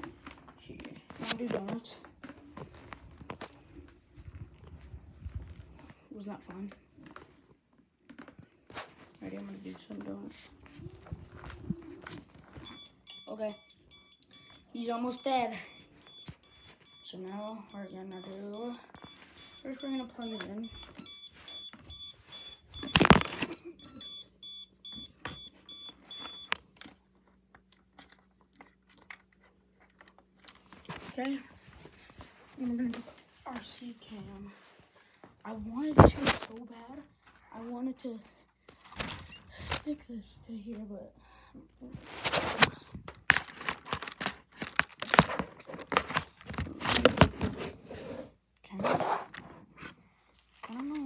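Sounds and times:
tablet handling crackles and scrapes: 42.0 - 42.7, 43.3 - 49.6.

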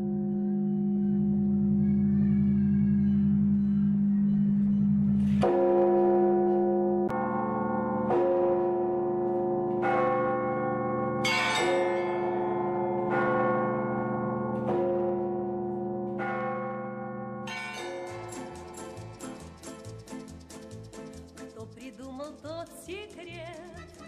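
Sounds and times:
church bells ringing: 0.0 - 20.4
music with quick short notes: 18.1 - 24.0.

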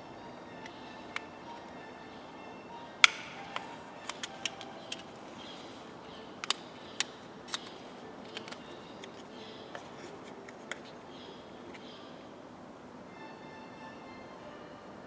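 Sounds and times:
plastic shell snapping apart: 3.0 - 5.1, 6.4 - 10.9.

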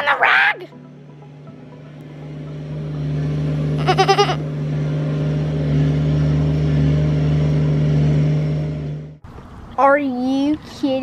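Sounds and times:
low motor drone: 0.7 - 9.2
goat bleating: 3.8 - 4.5.

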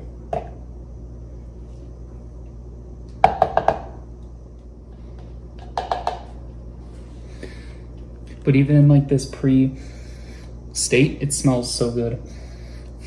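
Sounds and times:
spatula knocking on plastic cup: 3.2 - 3.9, 5.6 - 6.3.

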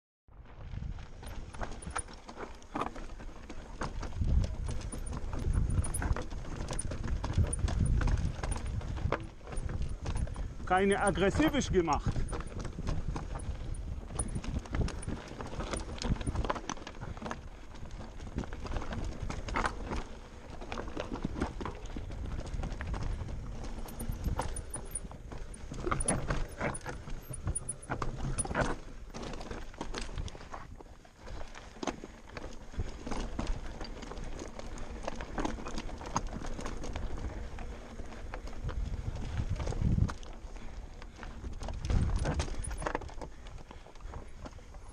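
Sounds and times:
wind noise rumble: 0.3 - 2.1, 3.9 - 20.0, 36.3 - 43.5
bike clattering over stones: 0.8 - 44.9.

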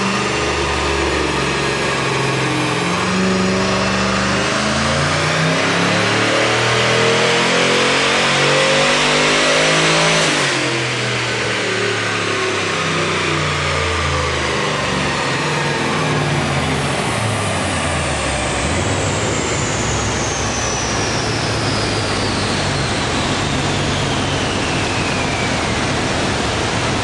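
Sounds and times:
car engine on dyno: 0.0 - 27.0
loud steady rushing noise: 0.0 - 27.0
high whine falling in pitch: 9.7 - 27.0.

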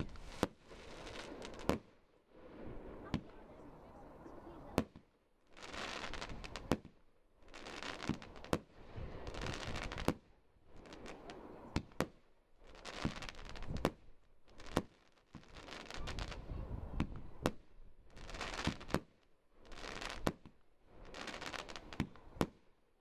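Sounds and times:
firework hiss: 0.0 - 4.9, 5.5 - 6.8, 7.5 - 11.9.

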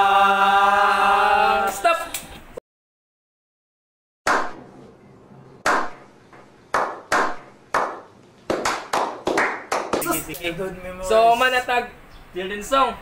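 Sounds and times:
slow hand clapping: 6.7 - 10.1.

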